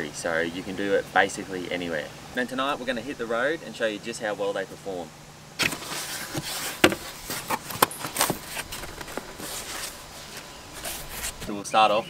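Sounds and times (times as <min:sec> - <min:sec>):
cardboard box rustling and scraping: 0:05.6 - 0:11.5.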